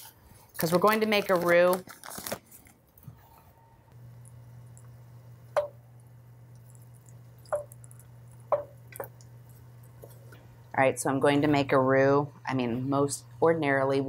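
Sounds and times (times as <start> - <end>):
steady low hum: 3.7 - 14.0
utensil knocking on pot: 5.6 - 5.8, 8.5 - 9.1.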